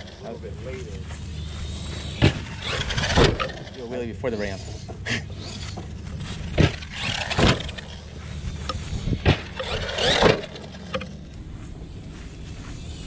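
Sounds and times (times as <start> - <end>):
rc truck driving on grass: 0.0 - 13.0
sharp thumps: 1.7 - 3.8, 4.5 - 11.3
wind rumble on microphone: 8.4 - 9.6.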